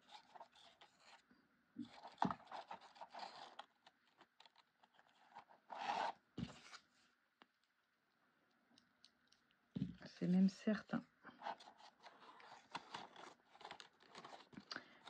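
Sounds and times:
paper rustling and scraping: 0.0s - 1.2s, 1.8s - 7.1s, 11.3s - 15.0s.

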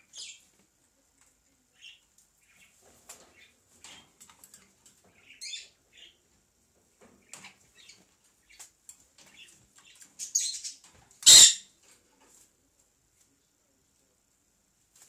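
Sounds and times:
parakeets chirping: 0.1s - 0.4s, 5.1s - 6.2s, 9.2s - 11.7s
scratches and clicks in cage: 0.4s - 5.5s, 6.8s - 13.4s.

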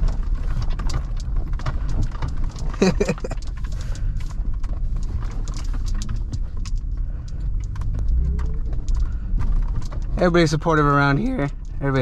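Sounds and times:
knocks and clatter: 0.0s - 12.0s
truck low rumble: 0.0s - 12.0s.

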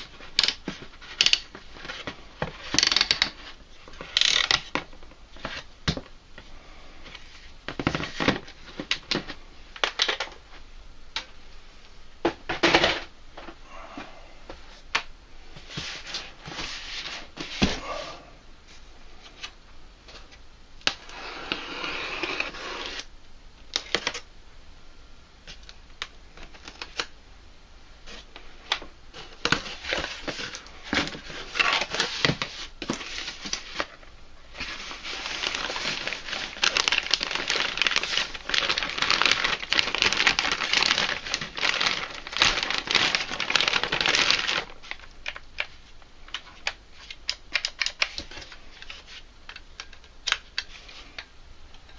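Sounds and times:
plastic bags crinkling: 28.1s - 51.3s.

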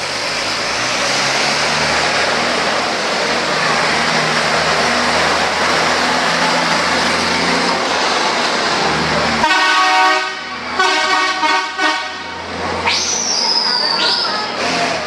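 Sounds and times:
heavy truck engine passing: 0.0s - 15.0s
truck horn blasts: 9.4s - 12.4s.

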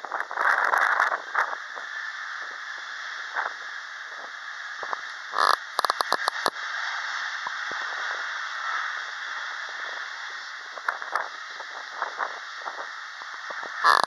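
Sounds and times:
distant jet engines rushing: 0.0s - 14.0s
sharp clicks: 5.4s - 6.5s.

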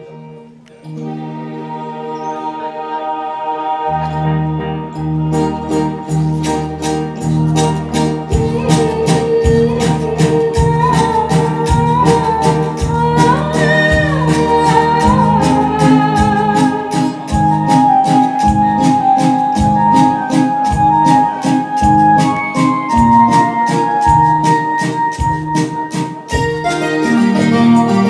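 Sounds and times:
live band playing: 0.0s - 28.0s
woman singing: 8.3s - 20.3s.

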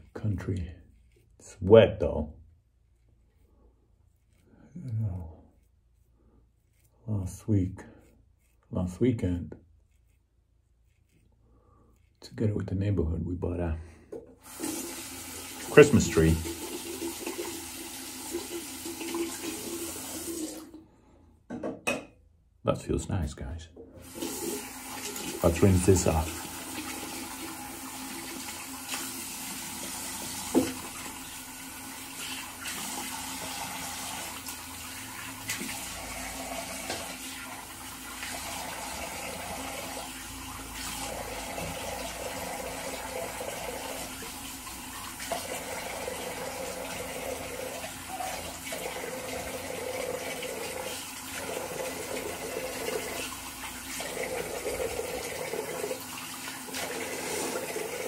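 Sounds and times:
tap water running into sink: 14.4s - 20.8s, 24.0s - 58.0s.

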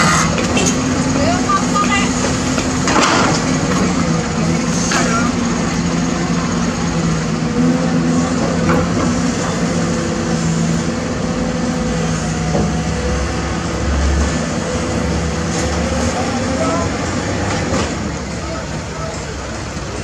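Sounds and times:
excavator diesel engine running: 0.0s - 20.0s
excavator knocks: 8.3s - 9.5s, 12.5s - 13.0s.

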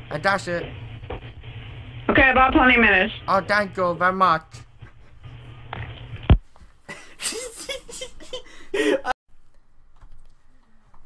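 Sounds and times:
person laughing: 6.9s - 9.2s.

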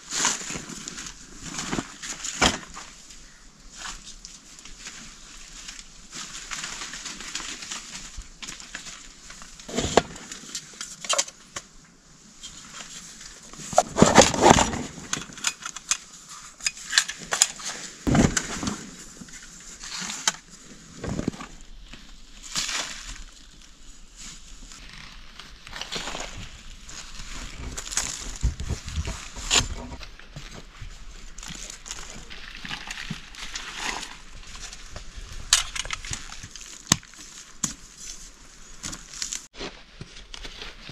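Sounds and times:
dry leaves rustling: 0.0s - 10.8s, 17.6s - 40.9s
camping gear clattering: 13.6s - 21.6s, 25.8s - 38.2s.

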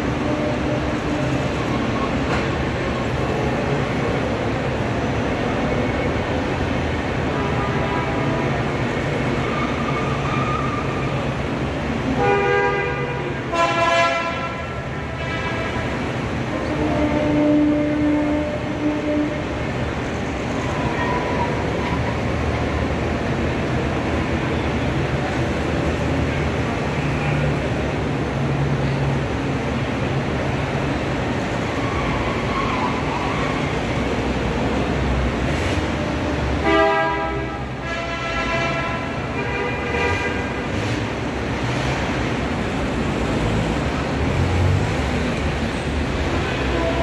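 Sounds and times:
cars driving past: 0.0s - 47.0s
car horns honking: 12.1s - 16.0s, 36.6s - 40.8s.

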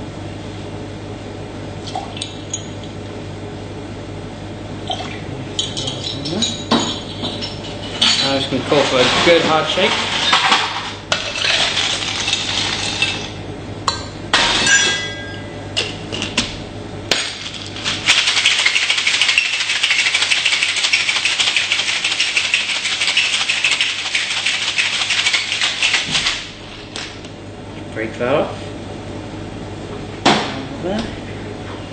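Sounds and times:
ice rattling in cocktail shaker: 17.8s - 26.4s.

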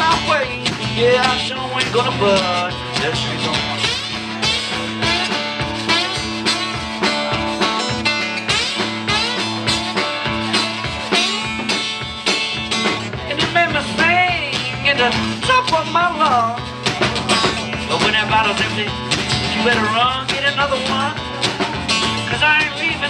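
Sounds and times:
acoustic guitar strummed: 0.0s - 23.0s
drum kit groove: 0.0s - 23.0s
sliding guitar notes: 0.0s - 23.0s.

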